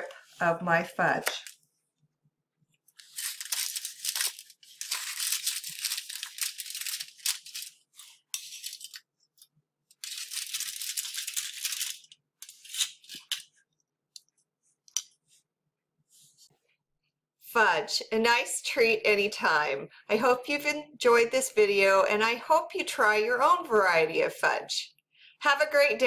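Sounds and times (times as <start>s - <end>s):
aluminium foil crinkling: 2.9s - 13.5s.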